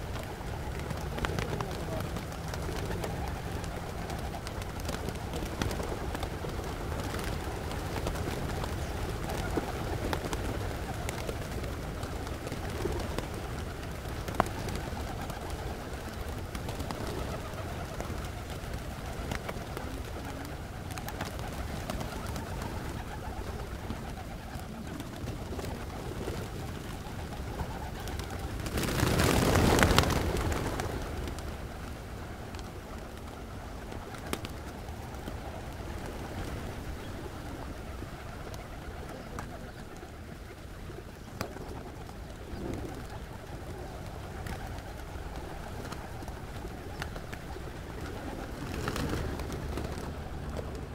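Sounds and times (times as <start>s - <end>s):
rush of flapping wings: 0.0s - 50.9s
pigeons cooing and grunting: 36.0s - 49.5s.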